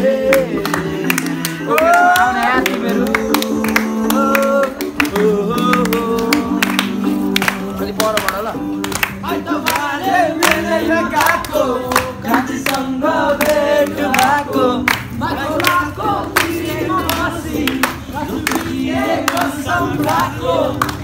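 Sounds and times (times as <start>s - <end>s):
background music: 0.0s - 21.0s
group singing: 0.0s - 21.0s
hand claps: 0.2s - 21.0s.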